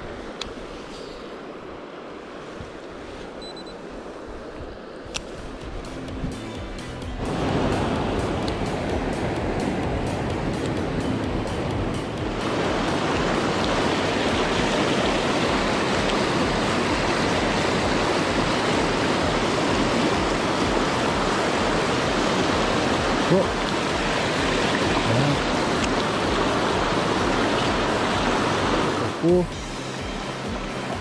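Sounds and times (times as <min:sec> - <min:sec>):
creek rushing over rocks: 0:07.2 - 0:31.0.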